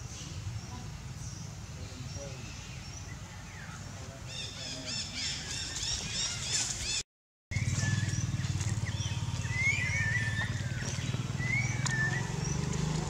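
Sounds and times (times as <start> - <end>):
birds chirping: 0.0 - 13.0
gliding bird calls: 7.6 - 12.9.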